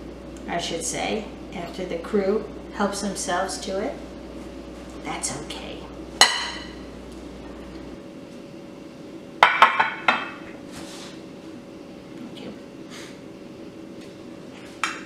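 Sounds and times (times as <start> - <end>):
soft brushing sound: 10.7 - 11.2.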